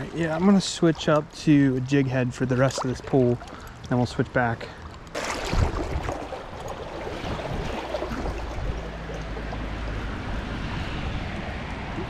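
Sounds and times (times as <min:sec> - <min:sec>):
river flowing: 0:05.0 - 0:12.0.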